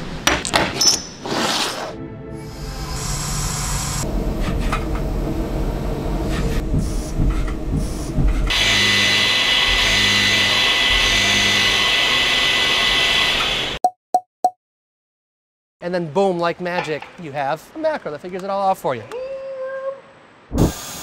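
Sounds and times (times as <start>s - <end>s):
high whine of end mill cutting: 2.5s - 6.2s, 8.5s - 13.8s
low pulsing hum: 2.9s - 8.6s
lathe cutting noise: 8.5s - 13.8s.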